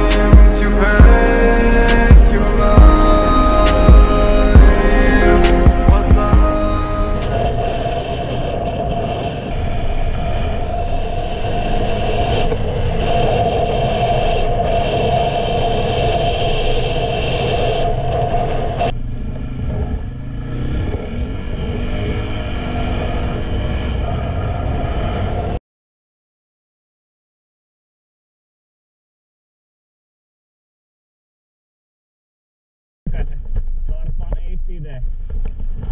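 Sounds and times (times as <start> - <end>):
engine revving: 0.0 - 14.4, 17.9 - 25.6.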